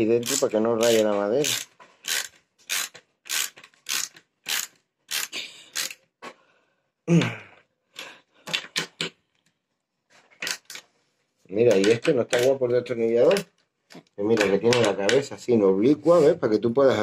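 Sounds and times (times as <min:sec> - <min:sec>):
screwdriver turning screw creak: 0:00.1 - 0:06.0, 0:10.4 - 0:10.8.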